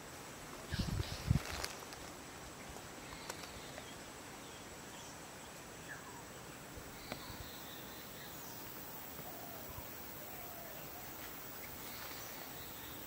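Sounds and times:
steady hiss: 0.0s - 13.0s
high insect tone: 0.6s - 13.0s
faint bird chirps: 2.6s - 13.0s
faint click: 7.0s - 7.3s.

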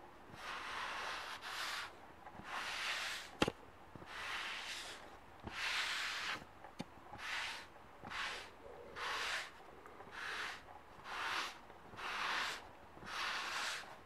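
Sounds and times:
sponge rubbing on metal: 4.0s - 6.4s, 7.2s - 14.0s.

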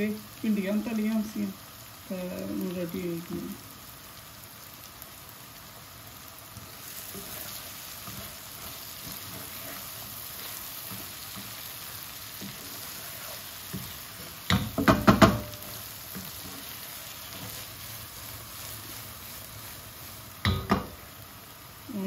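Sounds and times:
food sizzling in a frying pan: 0.0s - 22.0s
wooden spatula knocking on pan: 13.8s - 15.6s, 20.4s - 21.0s.

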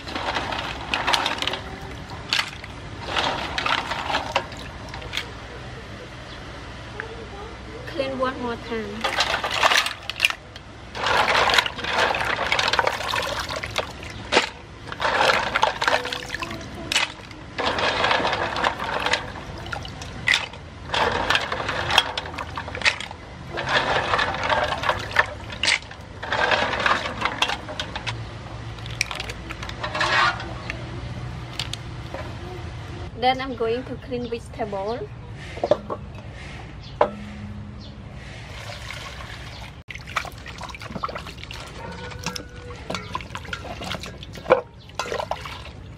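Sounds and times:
water splashing in basin: 9.0s - 30.2s, 38.5s - 45.9s
water pouring off: 38.5s - 45.9s.

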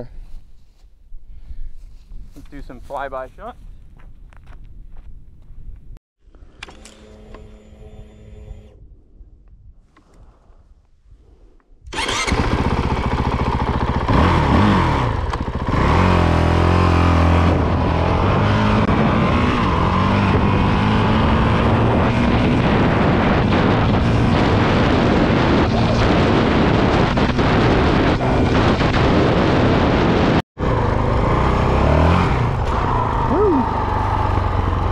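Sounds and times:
motorcycle engine running: 12.0s - 34.9s.

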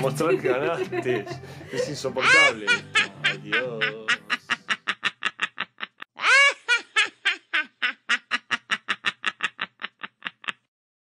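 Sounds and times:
rapid cackling laugh: 2.2s - 10.7s.

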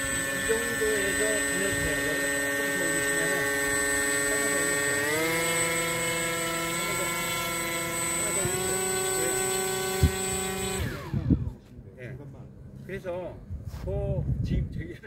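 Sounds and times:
electric motor and propeller humming: 0.0s - 11.8s.

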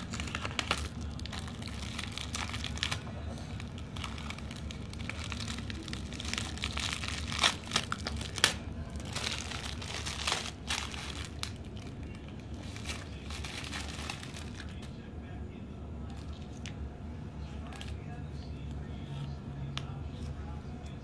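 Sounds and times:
paper crinkling: 0.0s - 14.9s.

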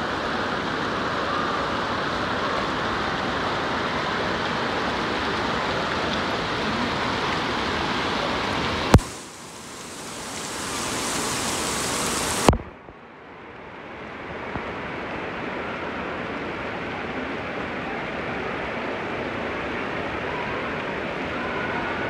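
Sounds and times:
water pouring and splashing: 4.6s - 12.7s.

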